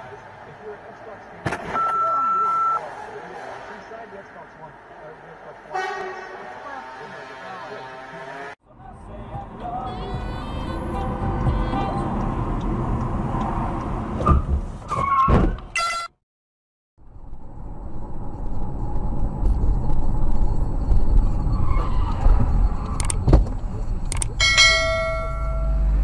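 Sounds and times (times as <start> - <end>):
car engine and road noise: 0.0 - 15.8, 17.0 - 26.0
steady pitched tone: 23.7 - 26.0.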